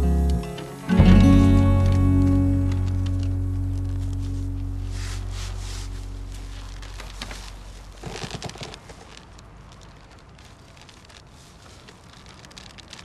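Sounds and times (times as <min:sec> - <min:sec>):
rope creaking and rustling: 0:01.0 - 0:13.0
small clicks: 0:01.6 - 0:04.4, 0:06.6 - 0:13.0.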